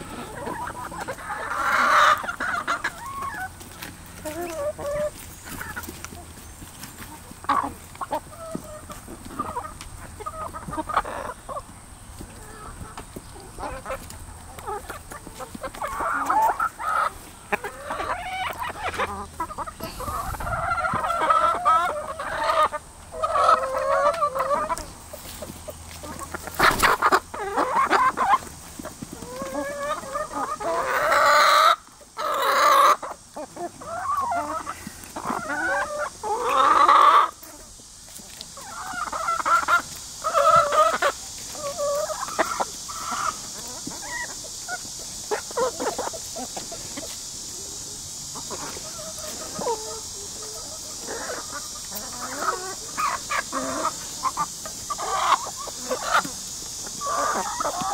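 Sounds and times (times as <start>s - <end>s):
chickens clucking and squawking: 0.0s - 57.9s.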